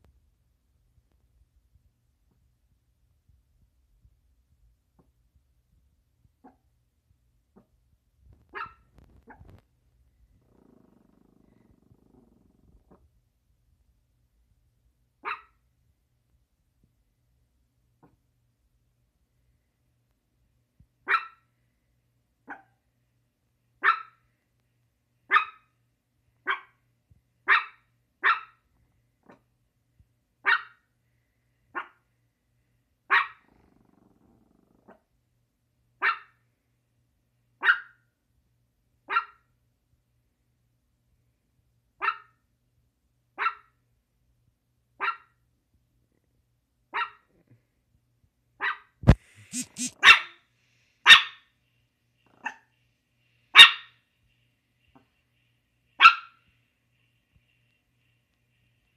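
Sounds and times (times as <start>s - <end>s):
small dog barking: 6.4s - 6.6s, 8.4s - 9.6s, 15.2s - 15.6s, 21.0s - 21.5s, 22.4s - 22.8s, 23.8s - 24.2s, 25.3s - 25.7s, 26.4s - 26.8s, 27.4s - 28.6s, 30.4s - 30.8s, 31.7s - 32.0s, 33.1s - 33.5s, 36.0s - 36.4s, 37.6s - 38.0s, 39.0s - 39.5s, 42.0s - 42.4s, 43.4s - 43.8s, 45.0s - 45.4s, 46.9s - 47.4s, 48.6s - 50.4s, 51.0s - 51.4s, 52.3s - 52.7s, 53.5s - 53.9s, 56.0s - 56.4s.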